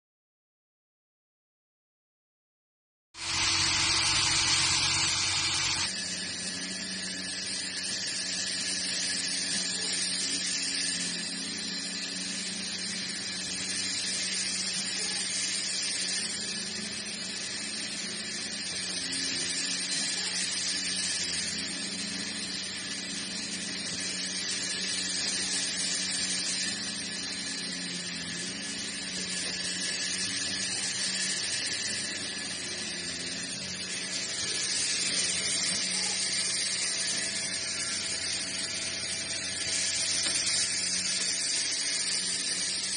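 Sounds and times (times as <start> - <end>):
low machine hum: 3.2 - 7.4
band saw cutting log: 3.2 - 42.9.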